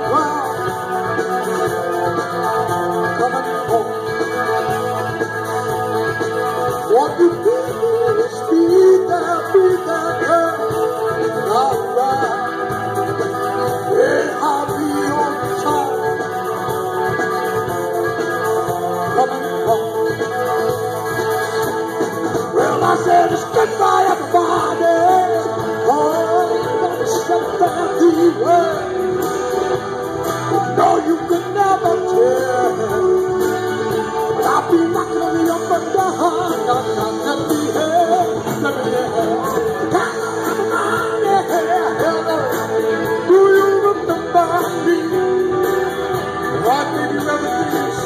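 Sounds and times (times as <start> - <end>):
man singing: 0.0 - 20.9, 22.4 - 48.0
drums: 0.0 - 48.0
electric guitars: 0.0 - 48.0.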